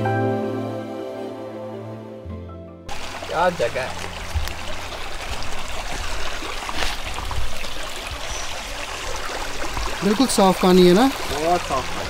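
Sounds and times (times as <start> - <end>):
stream of water trickling: 2.9 - 12.0.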